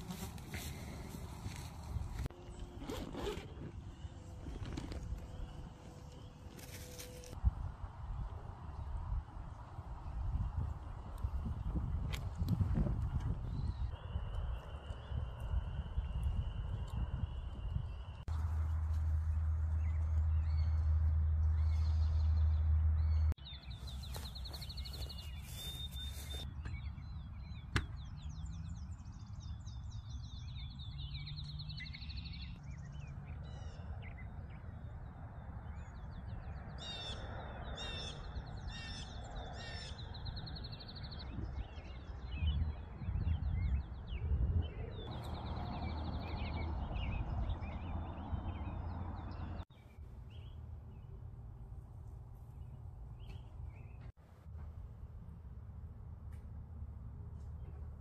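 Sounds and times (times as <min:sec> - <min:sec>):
wind rumble on microphone: 0:00.0 - 0:56.0
songbirds trilling and chirping: 0:08.1 - 0:54.2.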